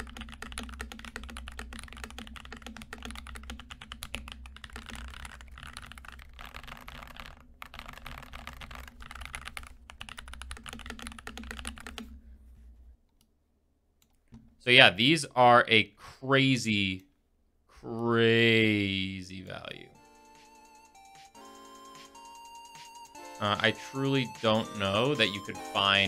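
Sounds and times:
mechanical keyboard typing: 0.0s - 12.1s.

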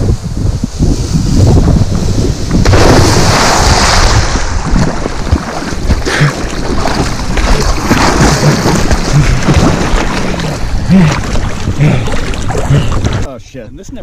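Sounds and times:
loud splash into water: 2.6s - 13.3s
water churning and sloshing: 2.6s - 13.3s.

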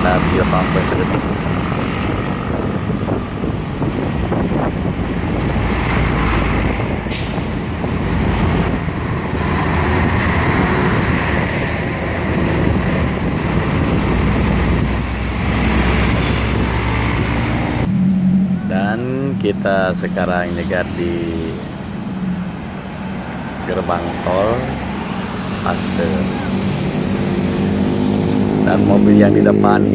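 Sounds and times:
passing motorcycles: 0.0s - 29.9s
truck engine and tyre noise: 0.0s - 29.9s.

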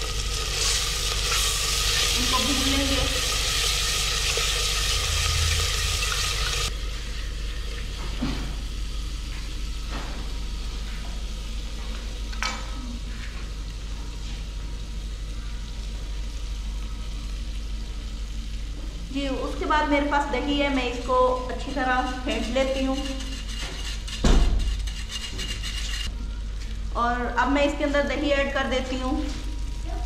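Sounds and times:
masala sizzling in hot oil: 0.0s - 8.0s, 13.6s - 26.1s
spatula stirring: 20.4s - 26.1s.

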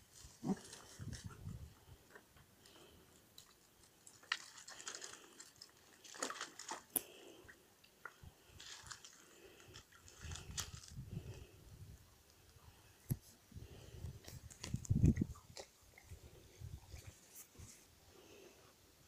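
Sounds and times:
water splashing and sloshing: 4.0s - 6.9s.

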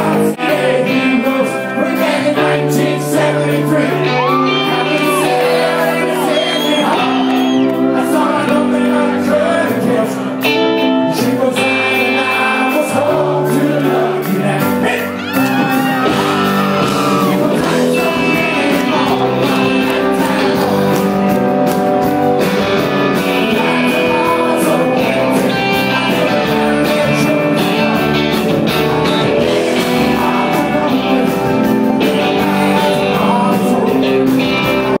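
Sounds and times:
man singing: 0.0s - 21.7s, 22.6s - 35.0s
rock band playing loudly: 0.0s - 35.0s
crowd shouting along: 2.2s - 8.0s, 13.3s - 21.4s.

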